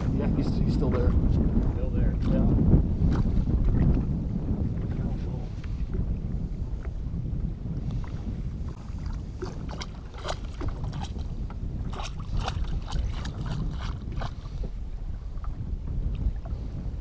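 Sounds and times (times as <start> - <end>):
waves lapping against boat: 0.0 - 17.0
wind rumbling on microphone: 0.0 - 17.0
small splashes and ticks: 9.0 - 14.5.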